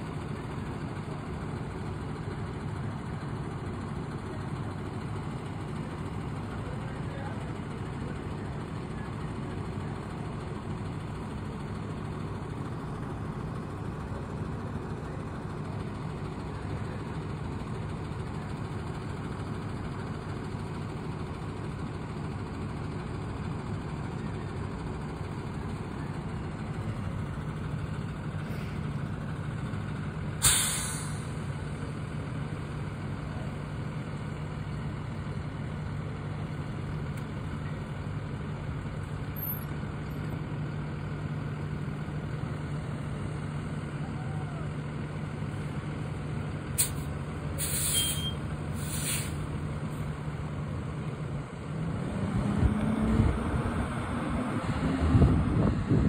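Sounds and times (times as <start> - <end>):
diesel bus engine droning: 0.0 - 56.0
compressed air hiss: 30.4 - 31.3, 46.8 - 49.4.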